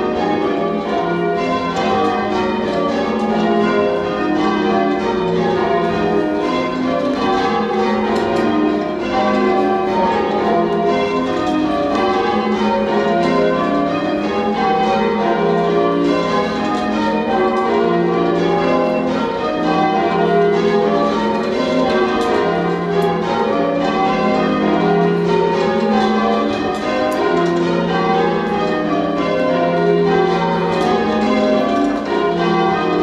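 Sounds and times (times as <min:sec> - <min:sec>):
church bells ringing: 0:00.0 - 0:33.0.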